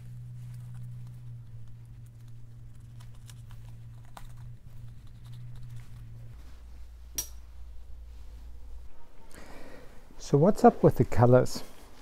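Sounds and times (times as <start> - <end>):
hands rustling cord: 0.0 - 7.1
steady low hum: 0.0 - 12.0
sharp click: 7.2 - 7.4.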